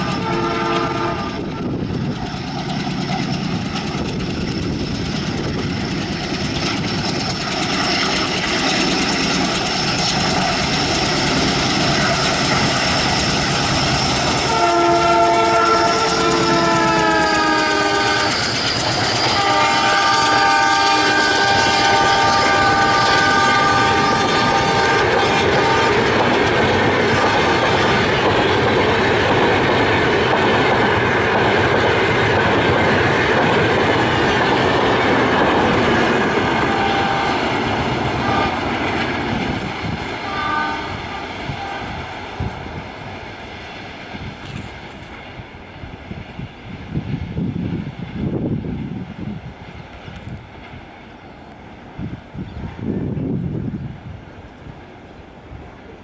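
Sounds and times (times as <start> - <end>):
locomotive horn blasts: 0.0 - 1.7, 14.4 - 18.5, 19.2 - 26.2, 27.1 - 27.9, 36.4 - 37.6, 38.2 - 38.7, 40.2 - 42.0
train wheels clattering on rails: 0.0 - 51.7
diesel locomotive chugging: 0.0 - 56.0.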